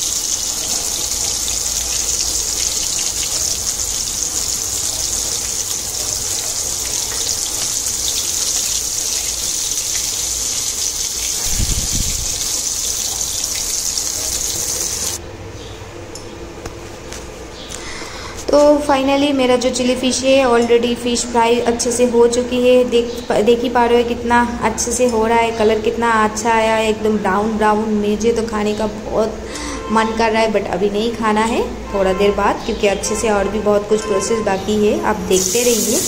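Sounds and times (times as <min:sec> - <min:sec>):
fish sizzling in hot oil: 0:00.0 - 0:15.2, 0:35.3 - 0:36.0.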